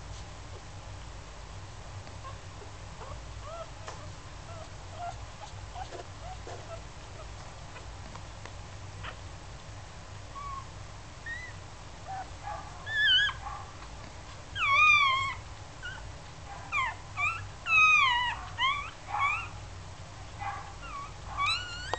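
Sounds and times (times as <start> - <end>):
puppies crying: 3.0 - 7.4, 10.3 - 13.6, 14.5 - 16.1, 16.7 - 19.6, 20.4 - 21.9.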